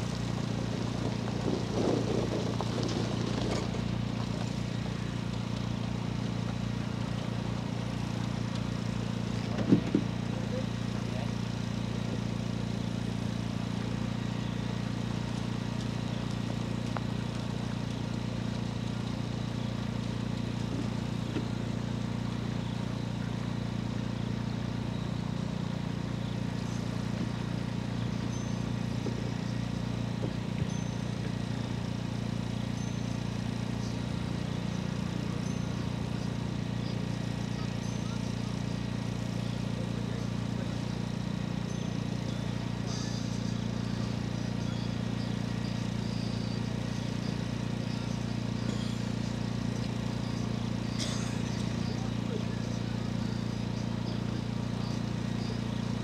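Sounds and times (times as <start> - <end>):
steady low hum: 0.0 - 56.0
faint high chirps: 20.8 - 56.0.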